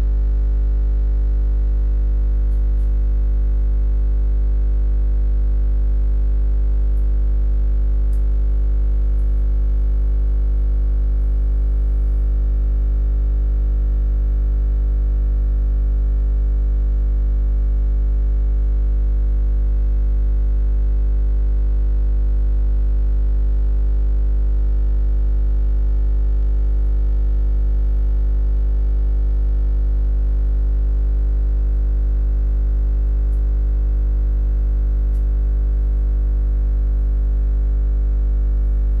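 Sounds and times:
low electrical hum: 0.0s - 0.2s, 0.8s - 3.3s, 6.9s - 12.7s, 33.0s - 33.9s, 34.6s - 35.3s, 38.4s - 39.0s.

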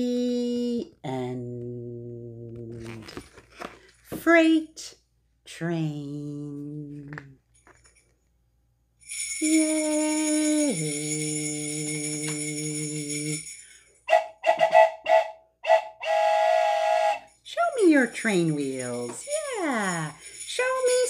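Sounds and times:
bright jingling: 9.0s - 14.1s, 17.3s - 21.0s
toy train whistle toots: 14.1s - 17.3s.

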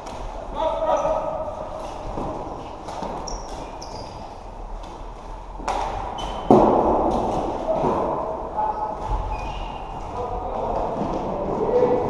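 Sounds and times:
sneaker squeaks on court floor: 3.0s - 4.3s, 6.2s - 6.5s, 8.7s - 9.9s.

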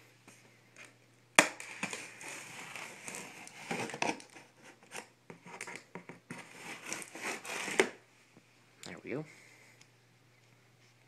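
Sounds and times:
cardboard rustling: 1.7s - 8.0s
knife slicing packing tape: 6.6s - 8.0s.

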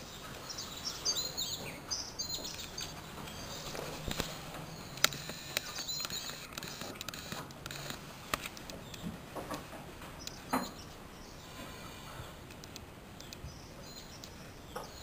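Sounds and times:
faint bird chirps: 0.0s - 7.3s, 13.2s - 15.0s
sharp clicks: 3.6s - 9.6s, 12.5s - 15.0s.

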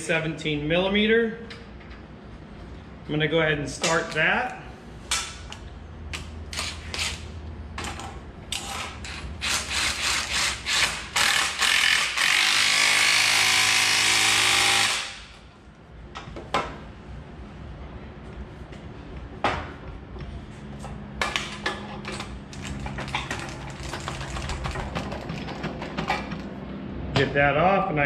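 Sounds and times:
cordless power tool running: 10.7s - 15.2s.

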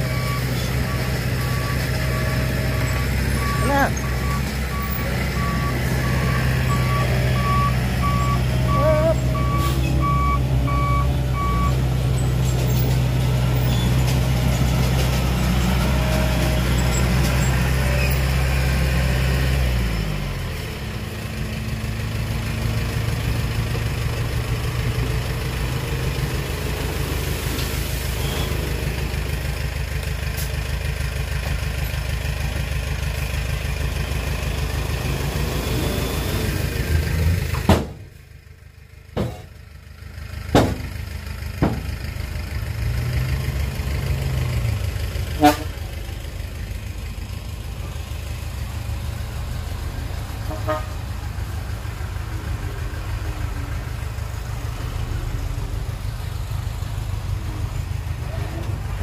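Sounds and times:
diesel engine running: 0.0s - 59.0s
reversing alarm beeping: 0.1s - 11.8s.

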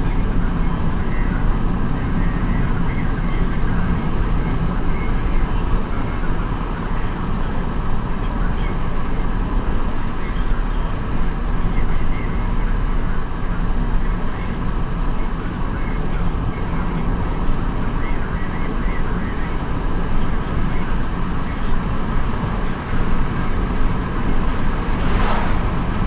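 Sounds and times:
car road and engine noise: 0.0s - 26.0s
rushing whoosh: 24.4s - 26.0s.

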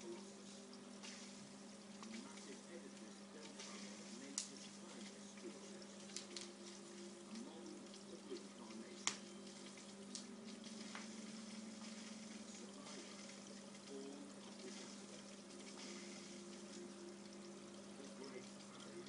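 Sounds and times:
aquarium filter humming and trickling: 0.0s - 19.0s.

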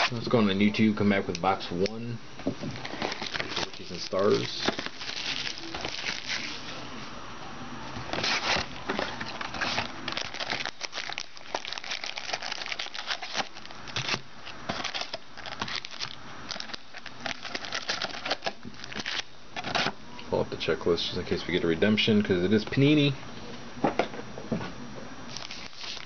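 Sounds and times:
paper and packs crinkling: 2.7s - 6.8s, 8.1s - 19.9s, 25.3s - 26.0s.

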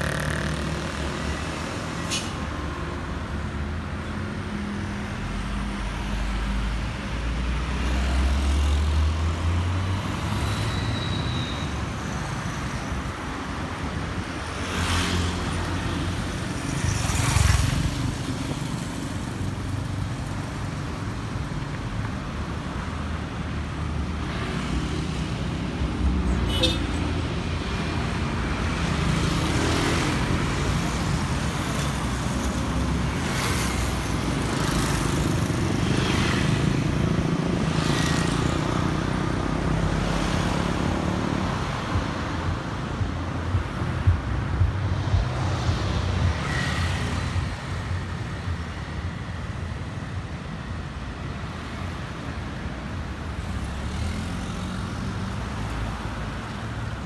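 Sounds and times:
vehicle engines running: 0.0s - 1.6s
vehicles passing: 0.0s - 57.0s.

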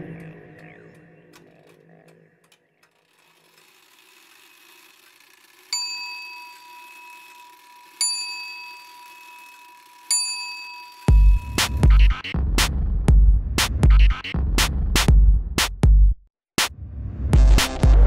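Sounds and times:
bright bell dings: 5.7s - 11.2s.

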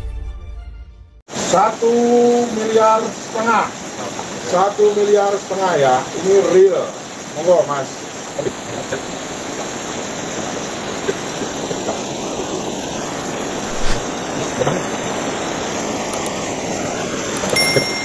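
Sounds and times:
steady rushing noise: 9.5s - 17.6s.

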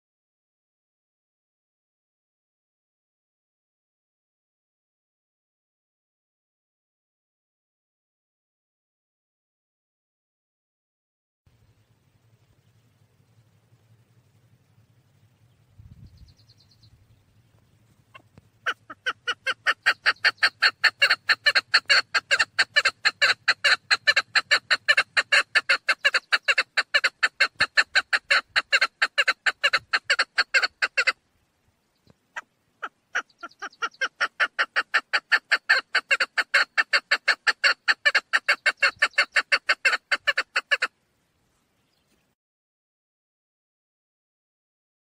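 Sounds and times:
partridge clucking calls: 17.5s - 31.2s, 32.0s - 41.0s.

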